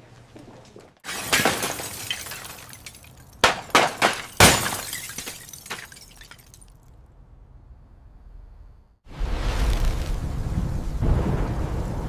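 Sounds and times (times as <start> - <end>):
glass fragments tinkling: 1.0 - 6.8
glass shattering: 1.0 - 6.8.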